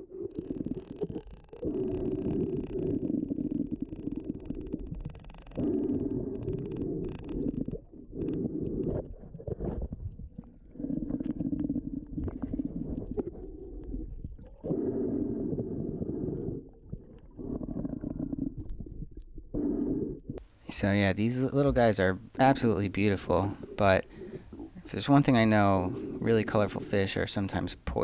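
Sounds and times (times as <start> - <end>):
muffled underwater noise: 21.4 - 28.0.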